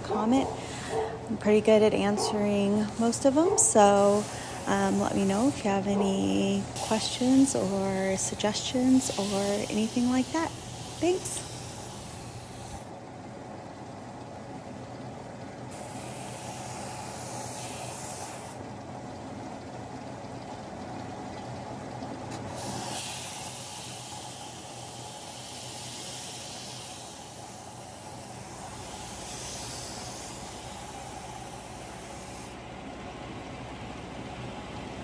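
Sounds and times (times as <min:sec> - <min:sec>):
wood rasping on sanding drum: 0:02.4 - 0:12.9.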